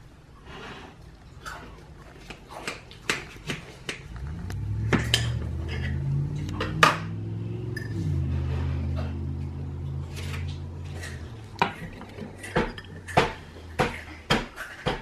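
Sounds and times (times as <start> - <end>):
low steady hum: 3.9 - 14.3
cutlery clinking on glass dish: 11.1 - 15.0.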